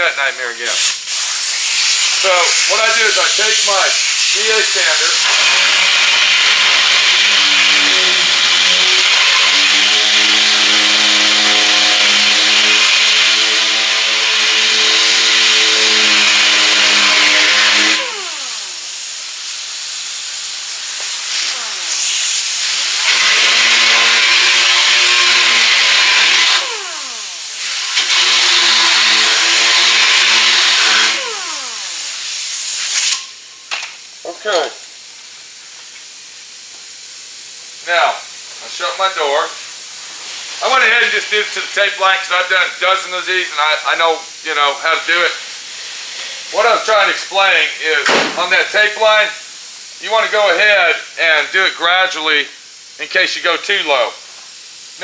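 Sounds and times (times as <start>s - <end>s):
air sander hissing and whining: 0.8s - 33.2s.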